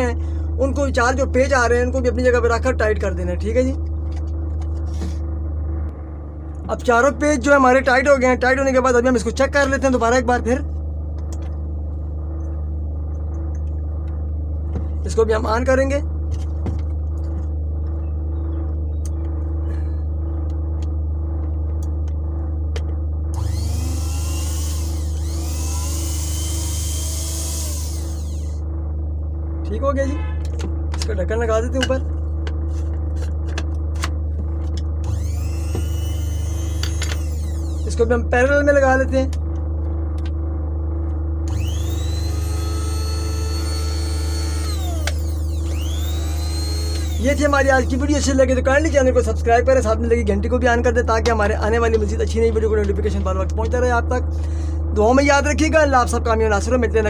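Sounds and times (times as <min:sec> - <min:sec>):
steady low hum: 0:00.0 - 0:57.0
coffee grinder motor whirring: 0:23.4 - 0:28.6, 0:35.0 - 0:38.1, 0:41.5 - 0:48.3.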